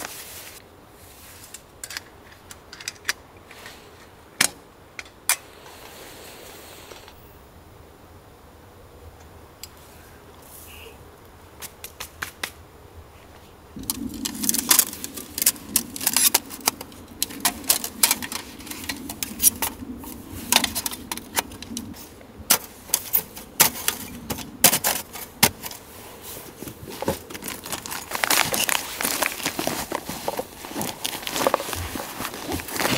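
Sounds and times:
low steady hum: 0.0s - 32.9s
small hard items clattering: 13.8s - 19.8s, 20.4s - 32.9s
bag rustling: 25.0s - 32.9s.

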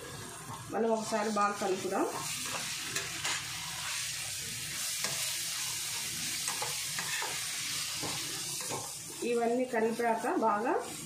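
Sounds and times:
food sizzling in oil: 0.0s - 11.0s
spatula scraping a pan: 0.9s - 11.0s.

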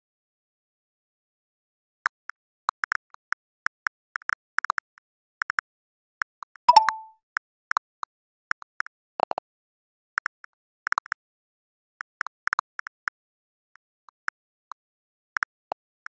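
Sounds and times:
keyboard tap clicks: 6.7s - 7.1s
message send tone: 6.7s - 7.1s.

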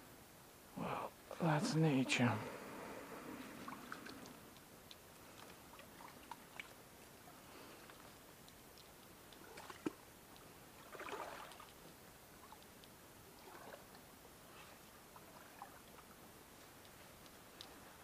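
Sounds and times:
faint water sounds: 0.0s - 18.0s
soft water splash: 9.4s - 10.0s, 10.8s - 11.8s.

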